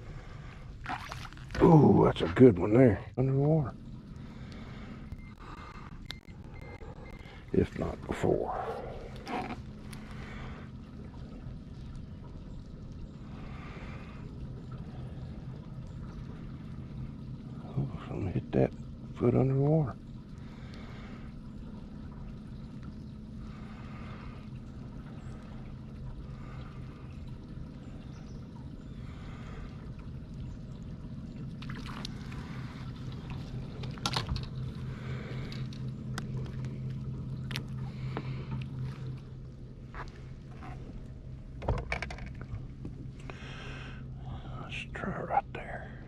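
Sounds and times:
electric boat motor humming: 18.8 - 44.4.

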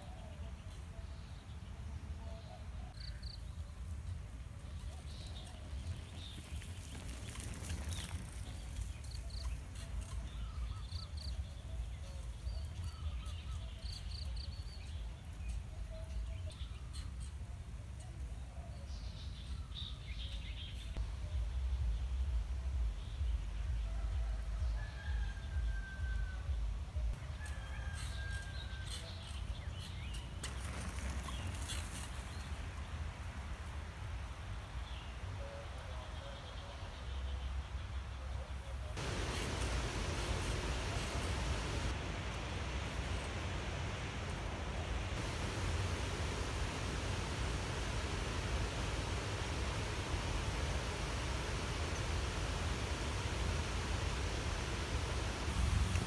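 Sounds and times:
bicycle tyres crackling over leaves: 5.2 - 11.2, 27.8 - 32.6, 39.0 - 43.6
birds chirping: 34.5 - 56.0.

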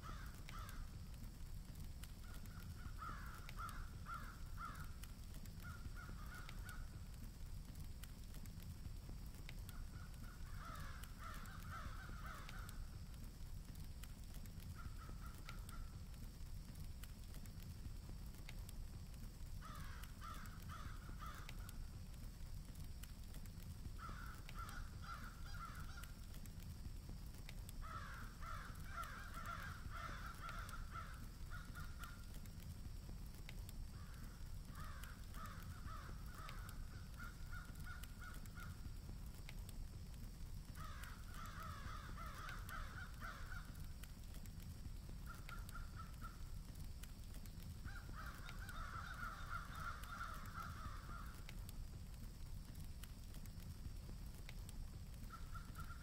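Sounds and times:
crows cawing: 0.0 - 0.9, 2.2 - 7.2, 9.7 - 13.2, 14.7 - 16.0, 19.6 - 22.0, 23.9 - 26.4, 27.8 - 32.6, 34.0 - 38.9, 40.7 - 44.4, 45.2 - 46.7, 47.8 - 51.7, 55.2 - 56.0
low background rumble: 0.0 - 56.0.

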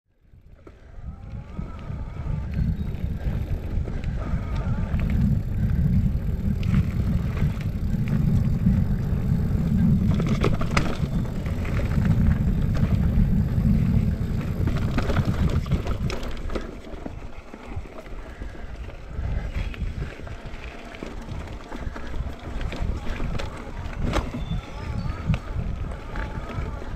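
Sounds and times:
wind rumble on microphone: 0.2 - 26.9
bike clattering over rocks: 9.8 - 17.3.

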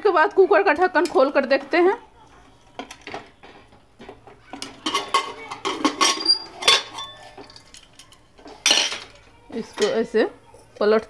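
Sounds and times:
metal lid scraping and clinking: 4.5 - 10.1.

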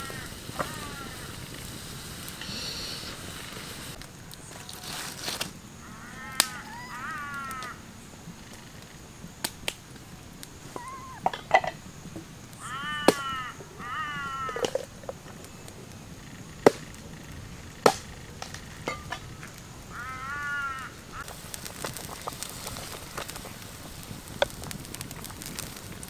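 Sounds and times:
animal calls: 0.0 - 1.4, 2.4 - 3.5, 5.8 - 8.7, 10.6 - 11.3, 12.6 - 14.9
pot boiling hiss: 0.0 - 26.0.

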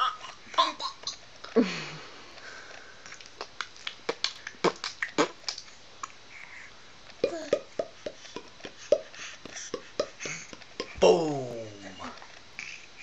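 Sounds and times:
sharp clicks and smacks: 3.0 - 6.2.

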